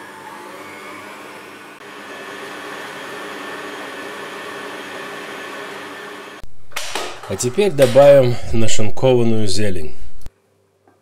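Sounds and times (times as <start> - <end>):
stand mixer motor running: 0.0 - 6.4.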